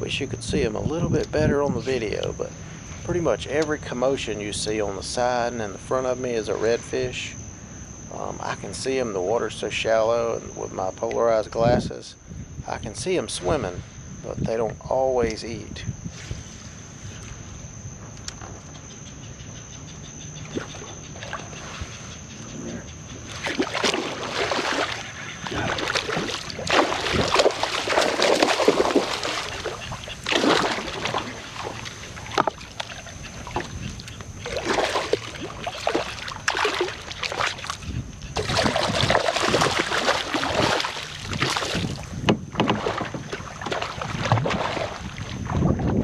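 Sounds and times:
water sloshing against kayak: 0:20.0 - 0:46.0.

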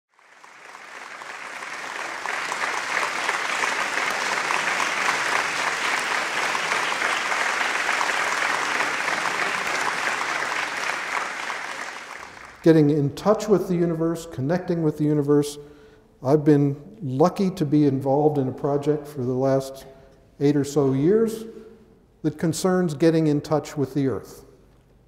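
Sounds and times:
audience applauding: 0:00.1 - 0:12.7.

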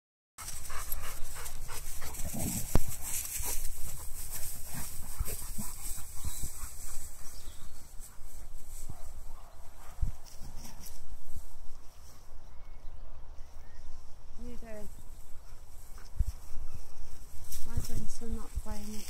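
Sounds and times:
dogs panting: 0:00.4 - 0:10.9
scuffling through long grass: 0:00.4 - 0:12.8, 0:13.4 - 0:19.0
wind noise on microphone: 0:00.4 - 0:19.0.

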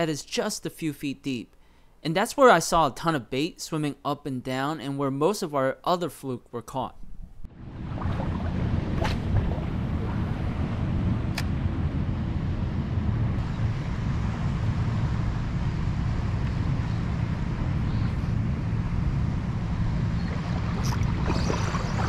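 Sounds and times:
wind buffeting microphone: 0:07.0 - 0:22.0
small waves lapping: 0:07.5 - 0:10.7, 0:20.1 - 0:22.0.

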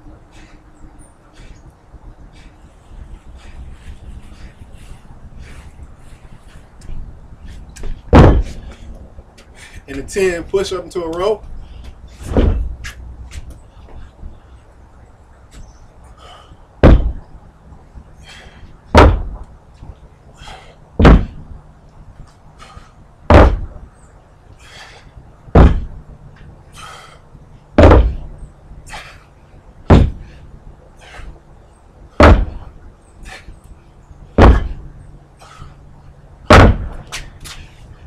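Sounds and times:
dumbbells thudding on wooden deck: 0:07.8 - 0:08.8, 0:12.1 - 0:12.9, 0:16.2 - 0:17.3, 0:18.3 - 0:19.5, 0:20.4 - 0:21.5, 0:22.6 - 0:23.9, 0:24.6 - 0:26.0, 0:27.7 - 0:29.2, 0:29.8 - 0:30.4, 0:32.1 - 0:33.5, 0:34.3 - 0:35.7, 0:36.4 - 0:37.6.

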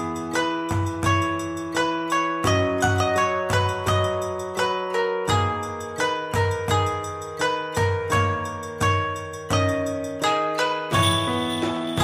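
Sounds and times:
ringing note melody: 0:10.9 - 0:12.0.

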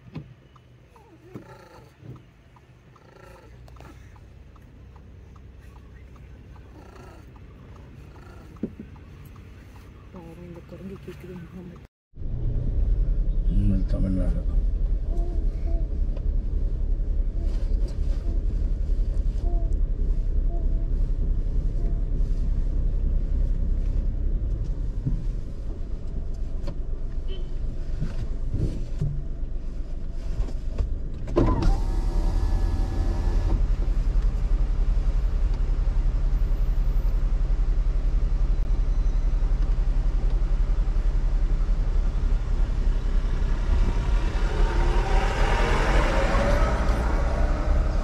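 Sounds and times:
car engine low rumble: 0:00.0 - 0:48.0
electric window motor whining: 0:31.4 - 0:33.6.

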